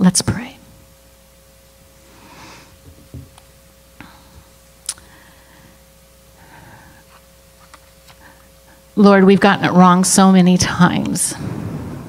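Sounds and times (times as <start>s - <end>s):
faint steady hum: 0.0s - 12.0s
soft breath: 2.0s - 2.8s, 4.0s - 5.8s, 6.4s - 7.2s.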